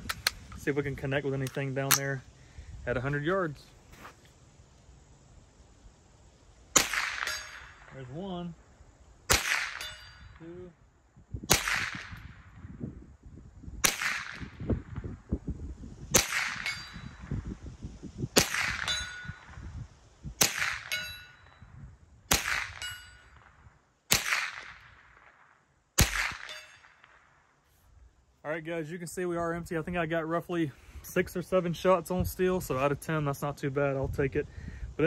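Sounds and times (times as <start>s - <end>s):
rifle shots: 6.7s - 8.0s, 9.3s - 10.2s, 11.5s - 12.4s, 13.8s - 14.6s, 16.2s - 17.0s, 18.4s - 19.4s, 20.4s - 21.0s, 22.3s - 23.5s, 24.1s - 27.3s
bullet ringing on steel: 7.2s - 7.8s, 9.8s - 10.4s, 16.6s - 17.2s, 18.8s - 19.5s, 20.8s - 21.6s, 22.8s - 23.4s, 26.4s - 27.0s.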